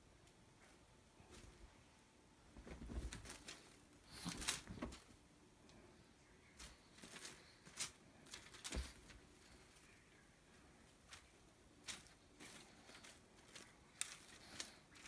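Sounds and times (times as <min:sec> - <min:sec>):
cat scrambling on bedspread: 0:02.6 - 0:05.1.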